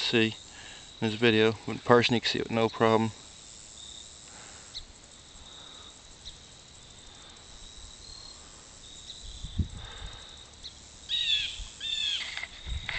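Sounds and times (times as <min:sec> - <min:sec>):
insect trilling: 0:00.0 - 0:12.9
small clicks: 0:12.1 - 0:12.9.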